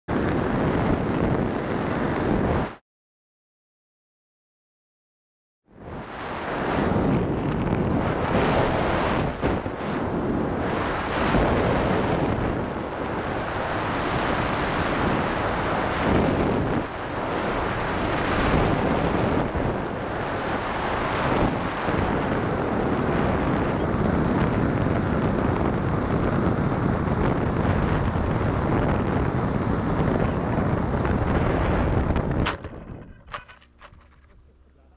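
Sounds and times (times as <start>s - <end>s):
wind buffeting microphone: 0.1s - 2.8s, 5.8s - 34.9s.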